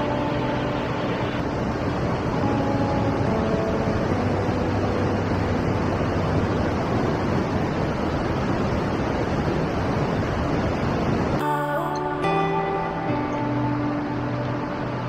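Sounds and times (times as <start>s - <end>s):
music: 0.0s - 8.0s, 11.4s - 15.0s
stream rushing over rocks: 0.0s - 15.0s.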